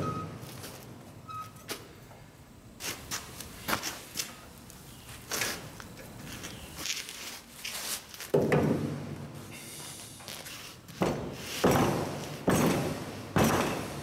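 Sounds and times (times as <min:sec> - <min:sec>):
heavy metal knocks and clanks: 0:11.0 - 0:14.0.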